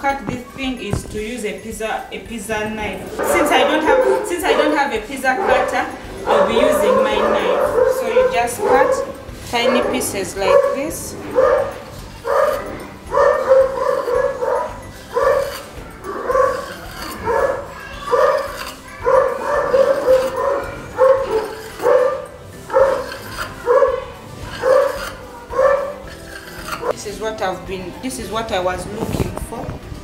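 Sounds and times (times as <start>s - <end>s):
dog barking: 3.2s - 26.1s.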